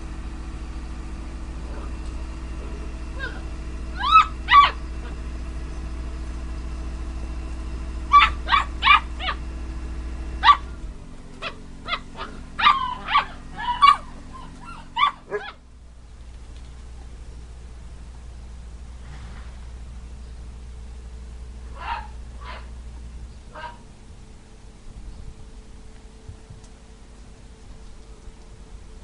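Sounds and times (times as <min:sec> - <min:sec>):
puppies yapping and yelping: 0:03.2 - 0:05.2, 0:08.1 - 0:09.4, 0:10.4 - 0:15.6, 0:21.8 - 0:22.7, 0:23.5 - 0:23.8.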